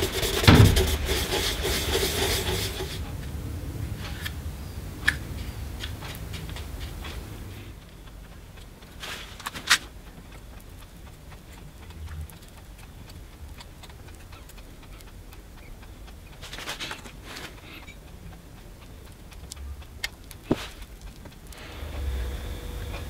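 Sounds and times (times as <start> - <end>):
scratchy rustle: 0.0 - 3.0, 9.0 - 9.9.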